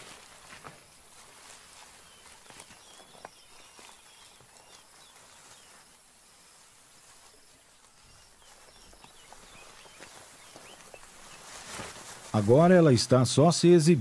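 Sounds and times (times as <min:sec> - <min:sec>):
light clicks of rustling vegetation: 0:00.0 - 0:13.0
soft steady hiss: 0:00.0 - 0:14.0
high bird chirps: 0:08.0 - 0:11.5.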